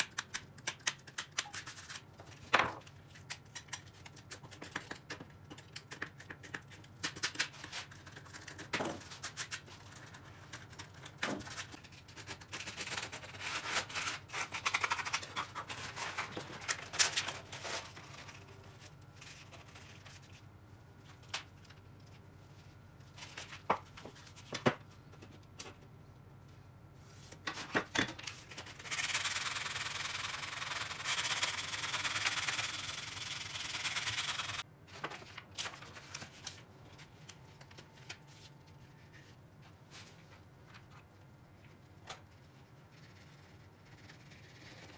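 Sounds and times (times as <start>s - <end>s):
sanding belt rustling: 28.9s - 34.6s.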